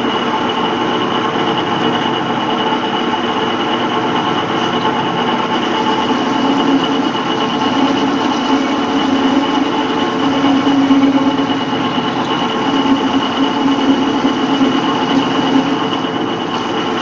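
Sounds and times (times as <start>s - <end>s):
metal lathe cutting: 0.0s - 17.0s
steady high tone: 0.0s - 17.0s.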